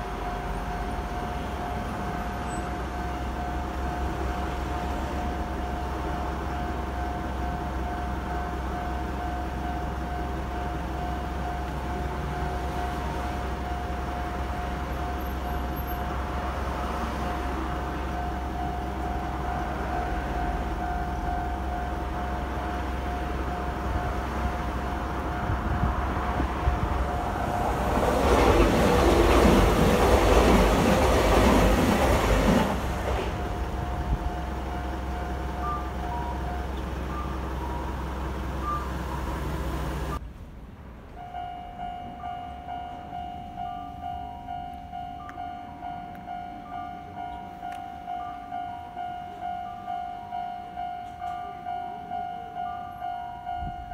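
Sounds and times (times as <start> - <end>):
electric train passing: 0.0 - 53.9
level-crossing bell ringing: 33.4 - 39.4, 41.2 - 53.9.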